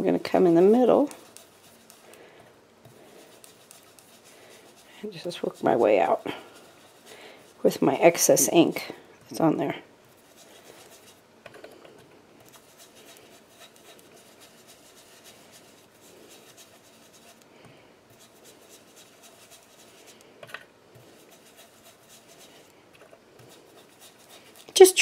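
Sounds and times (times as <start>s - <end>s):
brush scrubbing on cardstock: 0.5s - 2.1s, 2.8s - 8.6s, 12.5s - 17.4s, 18.1s - 20.2s, 21.0s - 22.7s, 23.4s - 24.8s.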